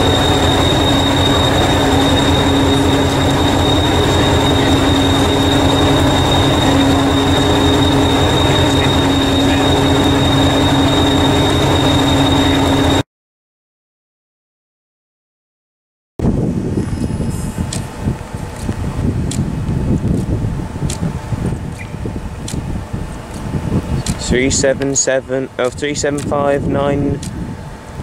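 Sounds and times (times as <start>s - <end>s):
train engine idling: 0.0s - 13.0s
high even whine: 0.0s - 13.1s, 16.2s - 28.0s.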